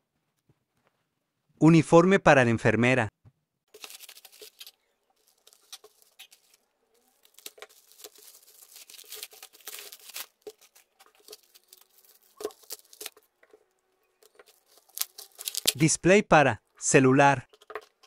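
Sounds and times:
air cushion packaging crackling: 3.7s - 15.9s
plastic mailer crinkling: 3.7s - 15.9s
plastic ripping: 3.7s - 15.9s.

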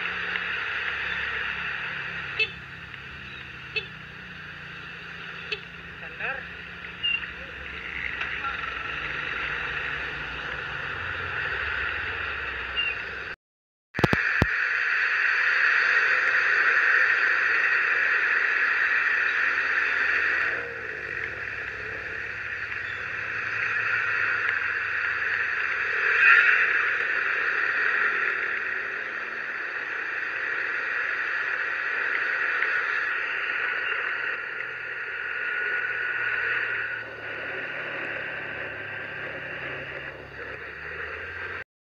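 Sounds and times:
click: 14.0s - 14.5s
tyres hissing on wet road: 15.0s - 41.6s.

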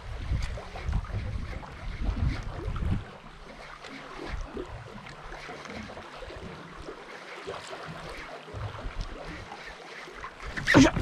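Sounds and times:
wind buffeting microphone: 0.0s - 3.2s
water lapping against boat hull: 0.0s - 11.0s
wind: 0.0s - 11.0s.

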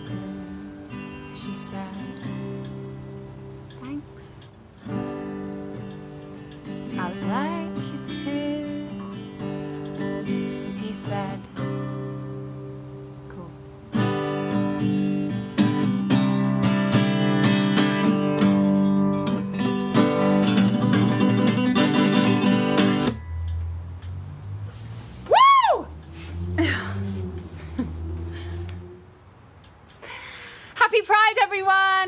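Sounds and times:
acoustic guitar strumming: 0.0s - 24.7s.

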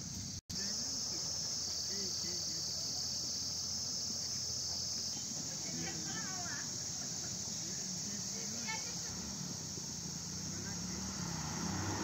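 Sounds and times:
insects trilling: 0.0s - 12.0s
faint distant voices: 0.5s - 12.0s.

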